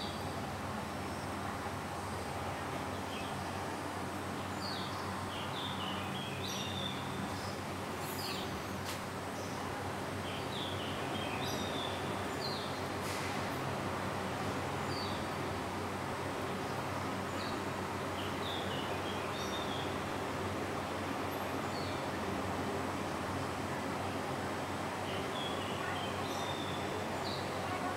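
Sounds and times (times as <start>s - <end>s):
small birds chirping: 25.1s - 27.9s.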